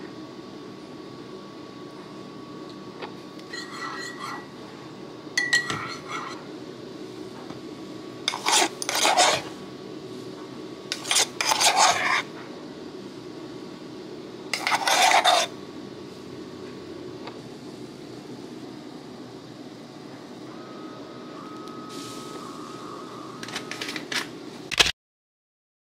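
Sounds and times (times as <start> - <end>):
metal spoon scraping ceramic: 3.5 - 4.5, 5.4 - 6.4, 8.3 - 9.5, 10.9 - 12.3, 14.6 - 15.5.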